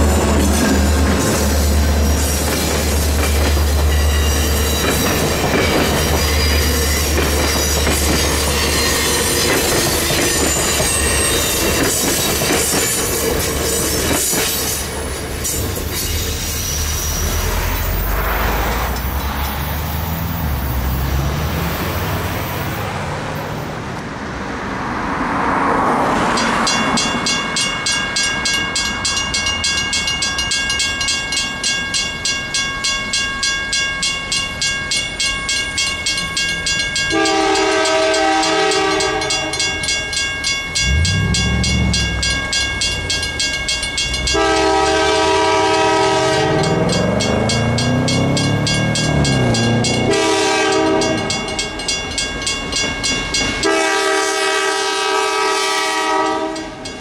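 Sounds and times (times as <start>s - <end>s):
railroad crossing bell ringing: 0.0s - 22.7s, 26.2s - 57.0s
passing road traffic: 0.0s - 30.8s, 34.6s - 57.0s
train horn blasts: 37.1s - 39.7s, 44.2s - 48.7s, 49.4s - 51.5s, 53.6s - 56.9s.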